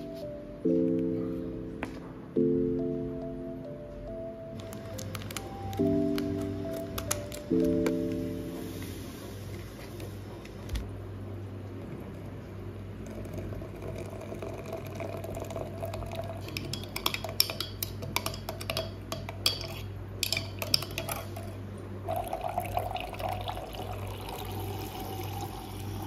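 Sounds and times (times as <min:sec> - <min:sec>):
hot water pouring into mug: 0:13.0 - 0:16.7, 0:22.1 - 0:26.0
spoon clinking against glass: 0:16.4 - 0:21.5.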